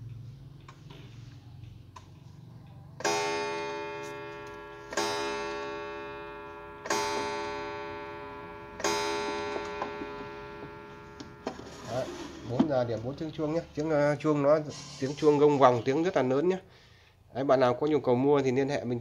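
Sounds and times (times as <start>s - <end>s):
faint clock clicks: 0.0s - 3.1s
clock gong striking: 3.0s - 13.5s.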